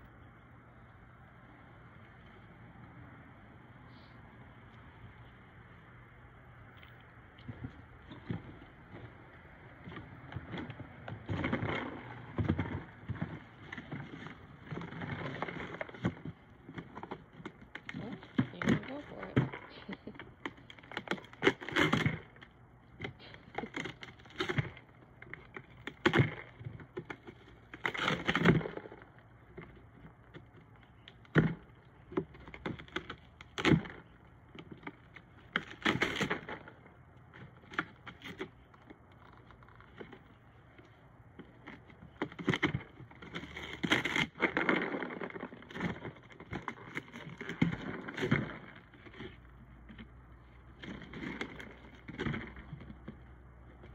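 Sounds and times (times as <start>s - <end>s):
kibble rattling in box: 9.9s - 53.9s
cardboard tearing and crinkling: 11.3s - 22.4s, 23.1s - 29.0s, 34.7s - 36.8s, 41.5s - 49.4s.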